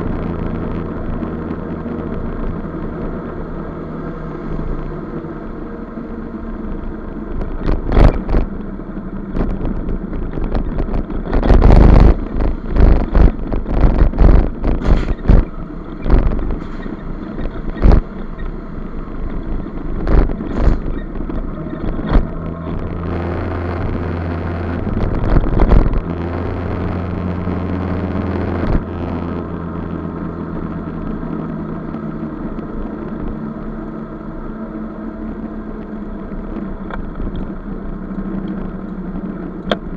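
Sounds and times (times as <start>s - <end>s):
wind buffeting: 0.0s - 33.5s
low drone: 0.0s - 39.9s
sharp thumps and knocks: 9.3s - 18.6s, 19.2s - 26.1s.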